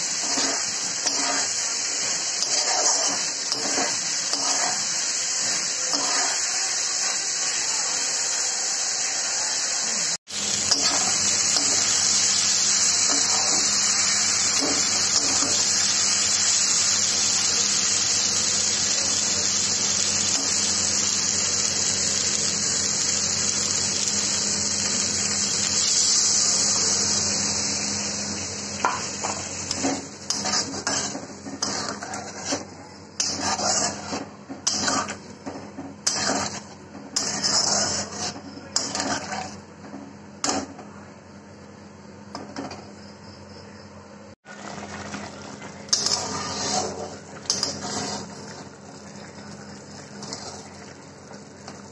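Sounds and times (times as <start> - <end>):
food sizzling in oil: 0.0 - 39.7, 44.4 - 51.9
metal spatula scraping pan: 0.1 - 7.1, 28.8 - 39.6, 45.9 - 48.6.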